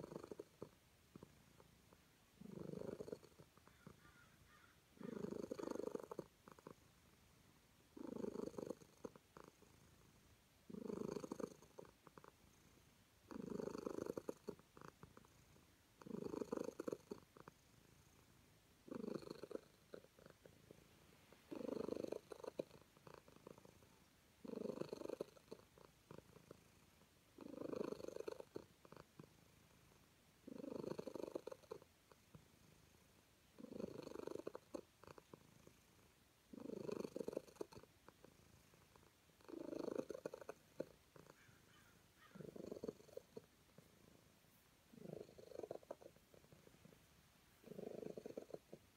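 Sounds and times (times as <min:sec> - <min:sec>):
cat purring: 0:00.0 - 0:48.9.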